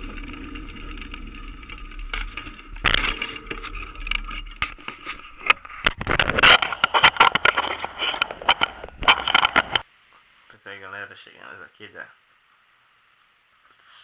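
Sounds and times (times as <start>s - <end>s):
wheels rolling on pavement: 0.0s - 9.8s.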